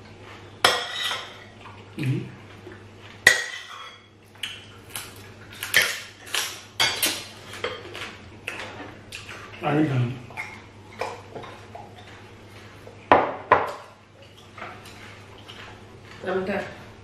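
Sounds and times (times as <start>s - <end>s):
eating sounds: 7.2s - 13.1s, 14.0s - 16.2s.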